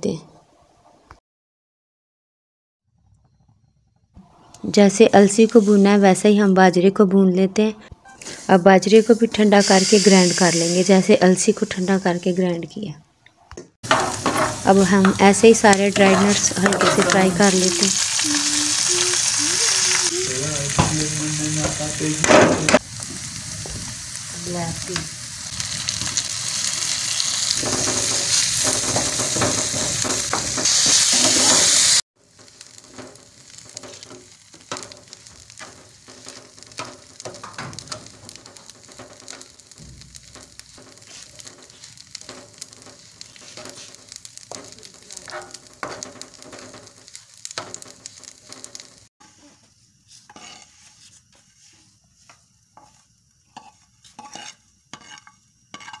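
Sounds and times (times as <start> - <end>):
food sizzling in hot oil: 4.3 - 7.0, 8.2 - 12.6, 13.8 - 56.0
spatula scraping steel pan: 50.1 - 56.0.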